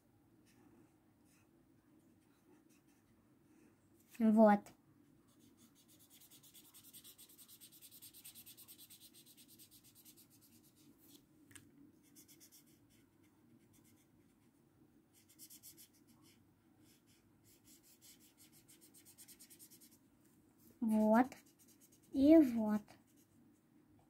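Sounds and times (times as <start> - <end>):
marker scratching on paper: 5.3 - 11.2, 12.0 - 13.0, 13.6 - 14.4, 15.2 - 20.0, 20.9 - 23.4.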